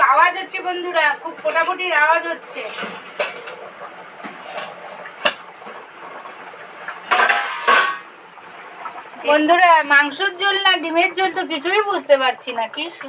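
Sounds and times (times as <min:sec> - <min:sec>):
curry boiling hard: 0:00.0 - 0:13.0
metal lid clinking and scraping: 0:07.1 - 0:08.1.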